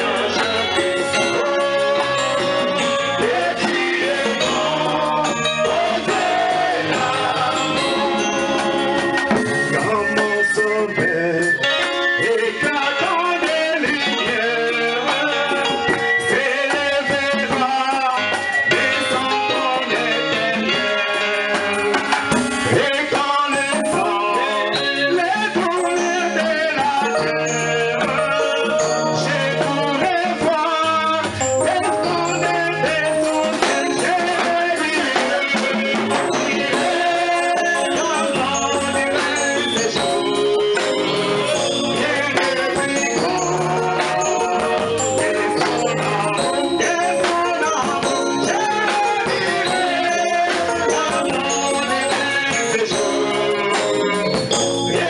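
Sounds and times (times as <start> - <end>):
band playing with drums: 0.0 - 55.0
instrumental backing music: 0.0 - 55.0
man singing into a microphone: 0.0 - 55.0.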